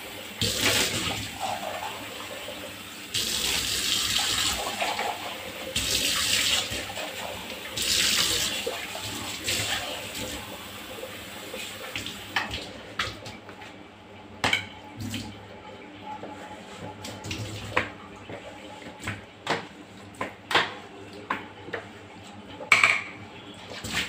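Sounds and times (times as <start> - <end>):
kitchen tap running: 0.0 - 13.3.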